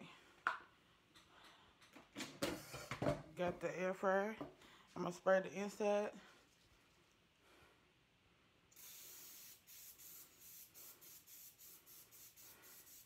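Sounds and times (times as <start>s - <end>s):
cooking spray hissing: 8.7s - 13.0s.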